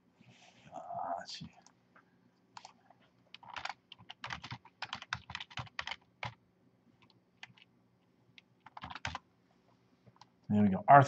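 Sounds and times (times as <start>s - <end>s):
typing on a computer keyboard: 2.6s - 6.4s, 7.0s - 7.7s, 8.4s - 9.2s.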